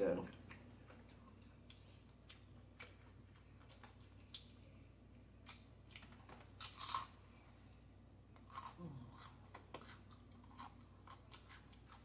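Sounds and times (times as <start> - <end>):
chip crunching when bitten: 5.4 - 7.2, 8.4 - 12.0
tortilla chips crackling: 5.5 - 7.2.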